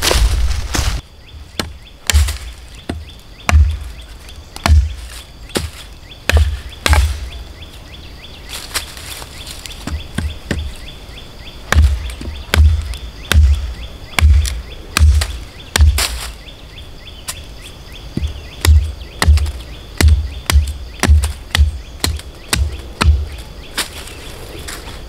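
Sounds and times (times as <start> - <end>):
sharp knocks with dull thuds: 0.0 - 7.4, 9.7 - 10.8, 11.7 - 16.3, 18.1 - 23.9
faint bird chirps: 1.0 - 25.0.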